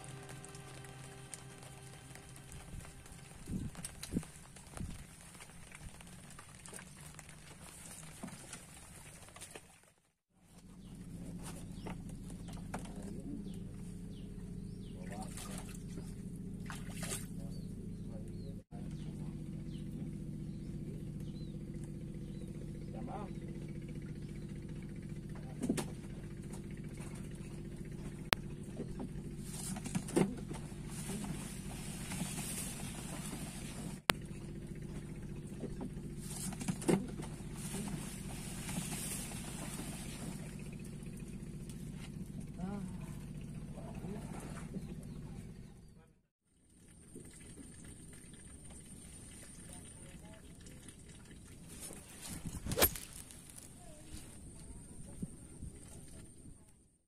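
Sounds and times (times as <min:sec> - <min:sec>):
steady low hum: 0:10.4 - 0:46.2.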